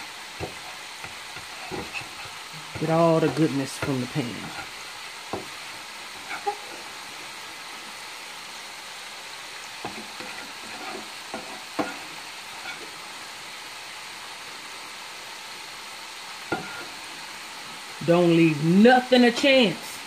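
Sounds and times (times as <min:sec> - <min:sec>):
pan sizzling: 0:00.0 - 0:20.0
spatula scraping a skillet: 0:00.2 - 0:07.7, 0:09.6 - 0:13.6, 0:16.5 - 0:17.3.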